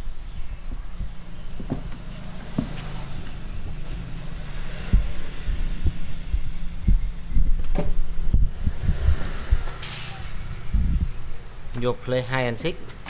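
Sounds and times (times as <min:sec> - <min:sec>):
low steady hum: 0:03.2 - 0:09.7.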